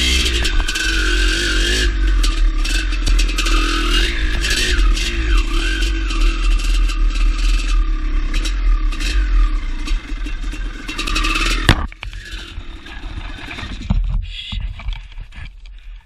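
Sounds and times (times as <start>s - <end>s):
motorcycle engine running: 0.0s - 15.5s
brush scraping along bike: 0.0s - 15.6s.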